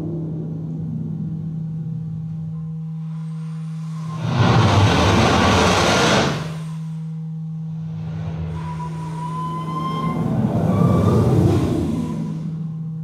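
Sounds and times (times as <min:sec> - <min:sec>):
low electronic drone: 0:00.0 - 0:13.0
hissing noise rush: 0:03.1 - 0:07.0, 0:07.7 - 0:12.8
thin high tone: 0:06.3 - 0:13.0.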